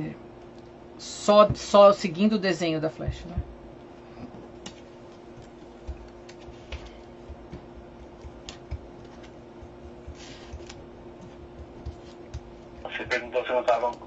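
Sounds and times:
faint steady hum: 0.0s - 14.0s
paper pieces tapping on mat: 5.4s - 14.0s.

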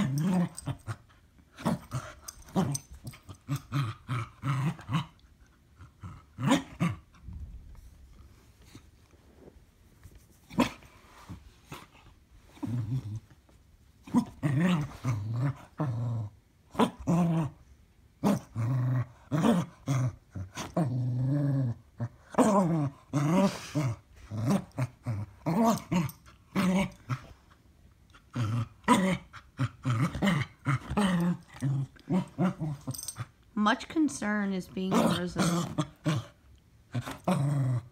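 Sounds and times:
dog growling: 0.0s - 5.2s, 14.1s - 17.6s, 18.2s - 27.4s, 28.1s - 33.3s, 34.9s - 37.9s.

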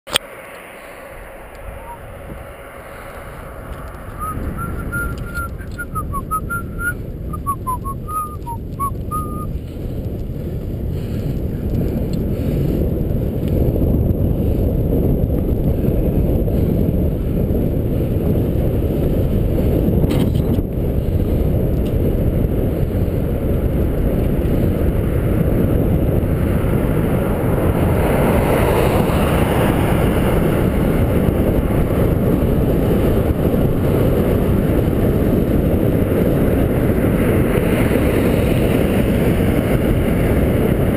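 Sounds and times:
wind buffeting microphone: 0.2s - 40.9s
short whistle-like chirps: 1.8s - 2.1s, 4.0s - 9.5s.

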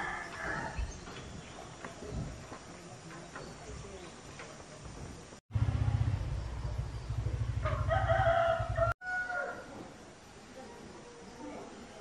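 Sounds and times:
rooster crowing: 0.0s - 0.8s, 7.6s - 9.7s.

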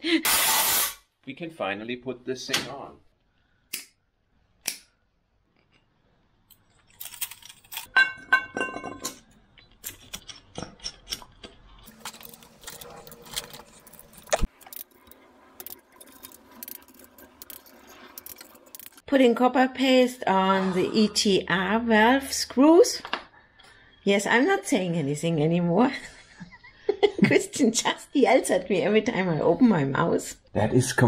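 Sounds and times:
metal parts and tools clinking: 6.5s - 19.0s.

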